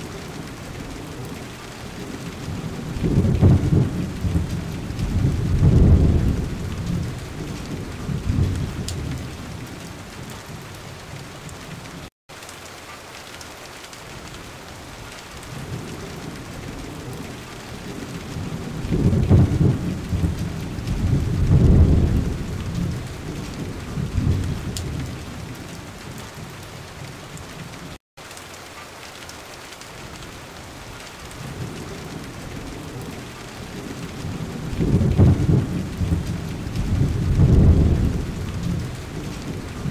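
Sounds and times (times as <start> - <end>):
steady rain: 0.0 - 39.9
rolling thunder: 0.2 - 10.7, 15.6 - 25.8, 31.4 - 39.9.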